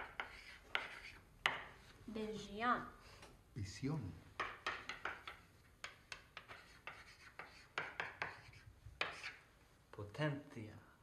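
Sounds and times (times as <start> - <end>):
chalk scratching on board: 0.0 - 1.6, 4.6 - 9.5.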